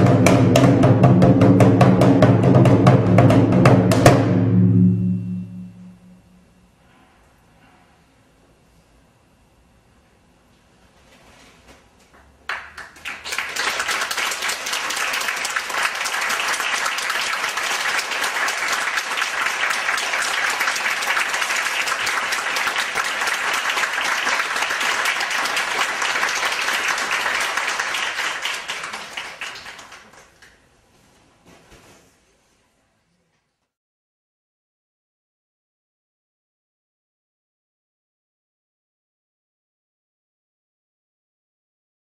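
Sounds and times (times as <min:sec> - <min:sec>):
audience applauding: 0:12.2 - 0:30.6.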